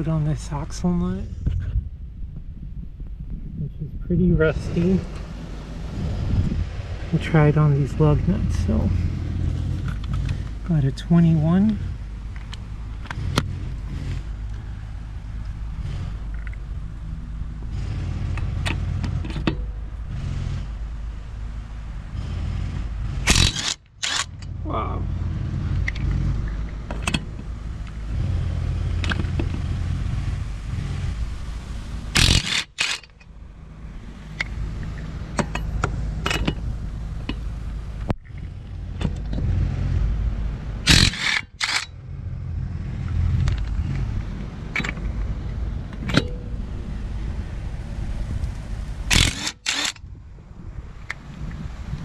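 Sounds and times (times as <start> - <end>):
impact wrench rattling: 23.3 - 24.6, 32.2 - 33.3, 34.3 - 37.4, 40.9 - 42.0, 49.1 - 50.0
sharp metal clank: 46.0 - 46.5.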